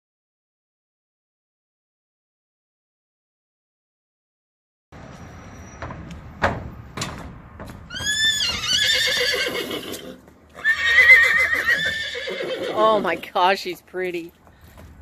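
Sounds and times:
sharp knocks: 0:05.8 - 0:08.2
horse whinnying: 0:07.9 - 0:13.3.

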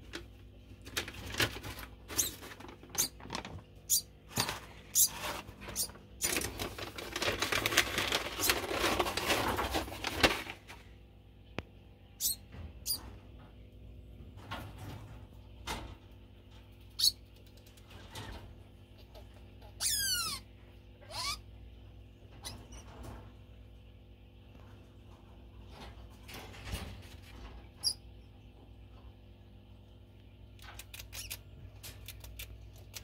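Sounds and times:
rustling and rattling in wire cage: 0:00.0 - 0:11.0, 0:12.2 - 0:20.0, 0:22.2 - 0:29.2.

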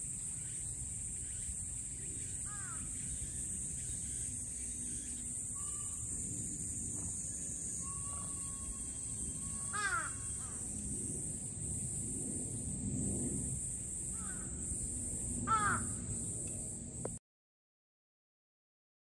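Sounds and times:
cicadas droning: 0:00.0 - 0:17.2
crow cawing: 0:02.5 - 0:03.0, 0:05.6 - 0:06.2, 0:07.9 - 0:10.7, 0:14.1 - 0:14.6, 0:15.4 - 0:16.0.

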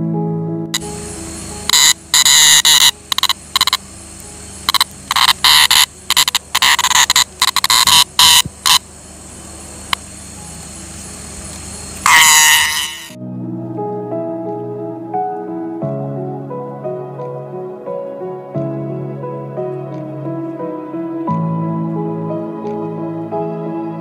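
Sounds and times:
cicada buzzing: 0:00.8 - 0:13.2.

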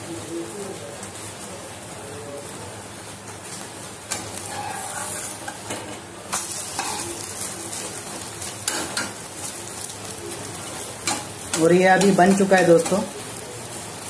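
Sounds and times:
egg sizzling in oil: 0:03.0 - 0:14.0
metal spatula scraping pan: 0:04.1 - 0:07.1.

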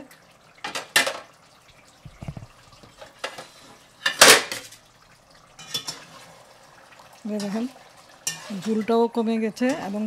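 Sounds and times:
spatula clanking on metal pot: 0:08.2 - 0:08.8.

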